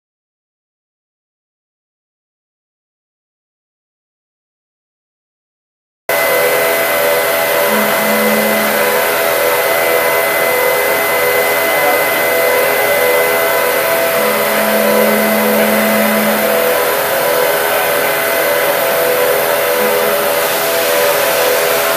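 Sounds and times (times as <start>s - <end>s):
machining center humming and whining: 6.1s - 21.9s
lower hum: 6.3s - 21.6s.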